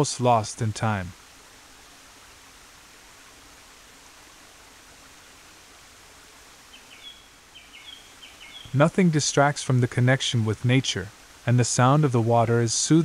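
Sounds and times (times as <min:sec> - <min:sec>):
waterfalls rushing over rocks: 0:00.0 - 0:13.0
bird chirping: 0:06.7 - 0:08.9.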